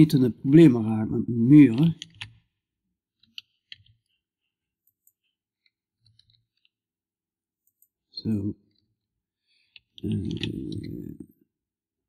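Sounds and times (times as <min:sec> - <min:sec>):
keyboard and mouse clicks: 0:01.7 - 0:02.5, 0:03.2 - 0:04.2, 0:09.7 - 0:11.3.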